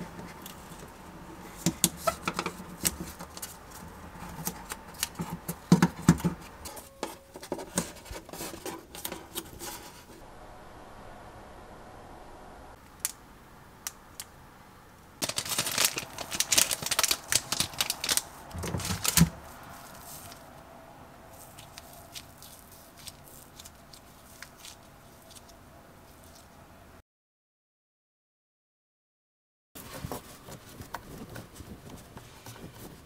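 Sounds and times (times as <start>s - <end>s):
paper wrapper crinkling: 15.2s - 20.5s, 21.3s - 26.5s.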